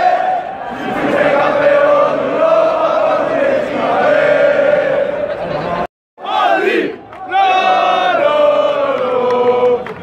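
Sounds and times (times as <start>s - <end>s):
crowd chanting in unison: 0.0s - 10.0s.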